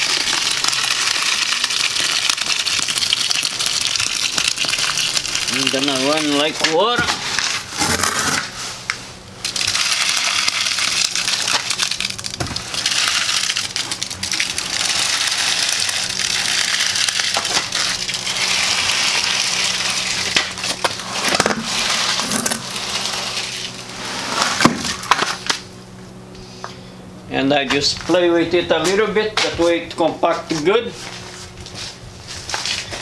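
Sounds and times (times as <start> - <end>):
wet concrete pouring from bucket: 0.0 - 8.5, 9.4 - 25.6.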